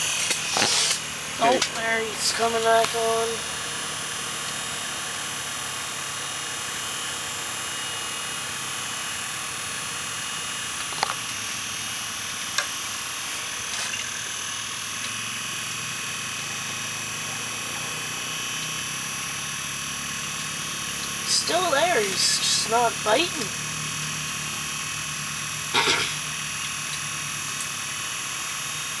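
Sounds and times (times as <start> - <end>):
mechanical hum and hiss: 0.0 - 29.0.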